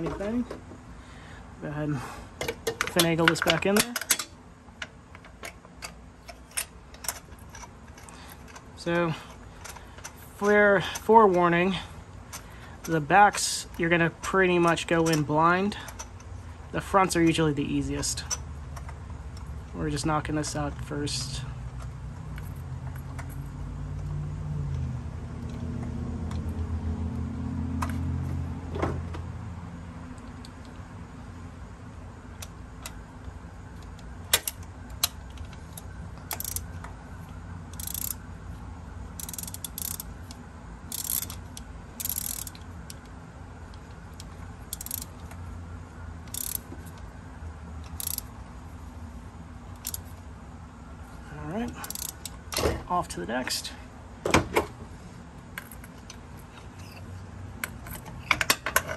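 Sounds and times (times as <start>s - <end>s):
sharp metal clicks: 32.4s - 37.0s, 37.7s - 38.3s, 39.2s - 45.4s, 46.2s - 47.1s, 47.8s - 48.3s, 49.8s - 50.1s, 51.7s - 52.7s
ratchet wrench clicking: 33.9s - 36.8s, 37.7s - 38.2s, 39.2s - 43.1s, 43.7s - 45.4s, 46.2s - 47.0s, 47.8s - 48.3s, 49.8s - 50.1s, 51.7s - 52.4s.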